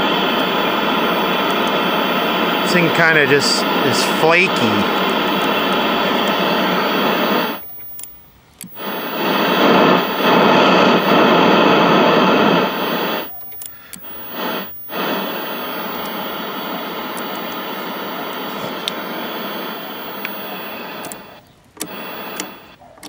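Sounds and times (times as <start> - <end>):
tv speaker static hiss: 0.0 - 23.0
switch clicks: 20.1 - 20.4.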